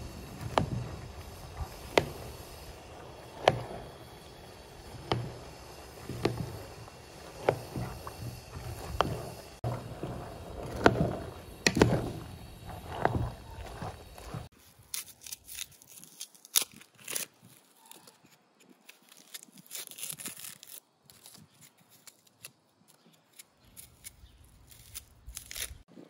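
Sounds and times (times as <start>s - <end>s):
seeds swishing: 0.0s - 14.9s
wooden spoon knocking metal pot: 0.4s - 14.5s.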